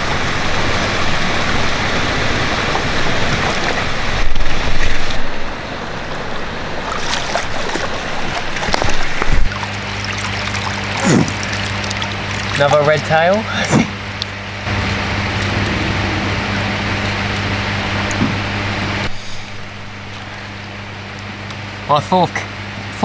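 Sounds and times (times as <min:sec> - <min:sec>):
fish splashing in water: 0:06.1 - 0:13.2, 0:13.9 - 0:21.4.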